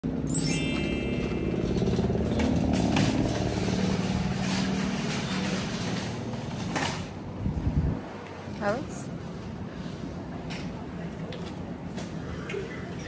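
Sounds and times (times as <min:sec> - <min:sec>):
trolley rattles and clanks: 0:00.0 - 0:07.4
shopping trolley wheels rumbling: 0:00.0 - 0:13.0.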